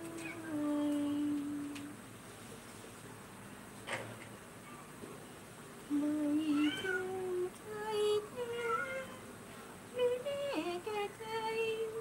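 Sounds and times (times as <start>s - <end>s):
woman humming slow melody: 0.0s - 2.0s, 5.9s - 9.1s, 10.0s - 12.0s.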